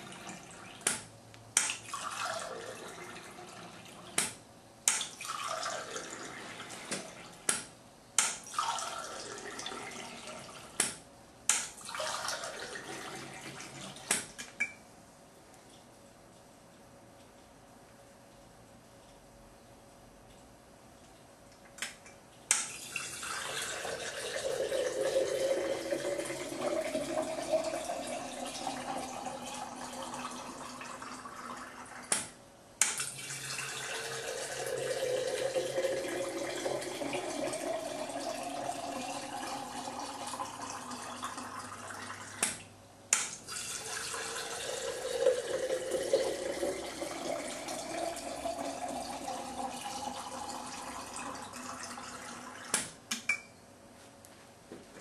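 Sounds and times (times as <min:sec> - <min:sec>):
liquid wax pouring into jar: 0:43.5 - 0:52.3.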